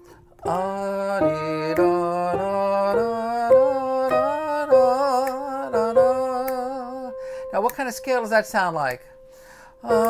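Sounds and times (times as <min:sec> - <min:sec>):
man singing slow melody: 0:00.0 - 0:10.0
piano: 0:00.0 - 0:10.0.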